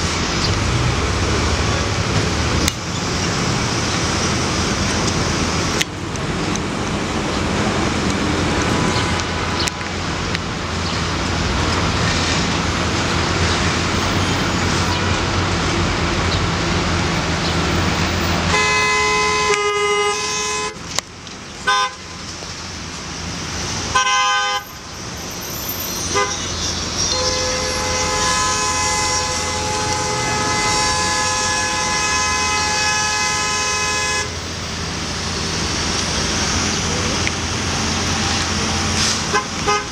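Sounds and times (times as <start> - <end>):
street traffic: 0.0 - 39.9
vehicle horn blasts: 18.5 - 20.8, 23.9 - 24.6, 26.1 - 34.4, 39.3 - 39.9.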